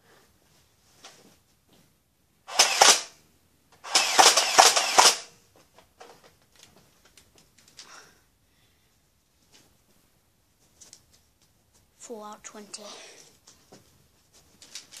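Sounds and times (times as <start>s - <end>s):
foam dart blaster cracks: 2.5s - 3.2s, 3.8s - 5.3s
faint clicks and rustles: 5.4s - 8.2s, 9.3s - 12.0s, 13.2s - 15.0s.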